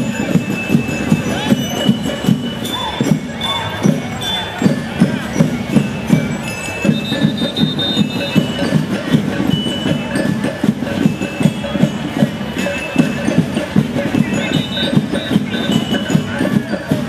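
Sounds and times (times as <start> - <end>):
high ringing tones: 0.0 - 10.4
fast drum beat: 0.0 - 17.0.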